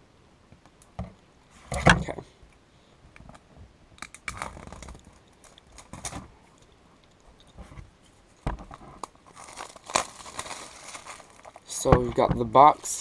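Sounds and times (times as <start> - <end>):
plastic wrap crinkling: 4.1 - 6.4, 8.6 - 13.0.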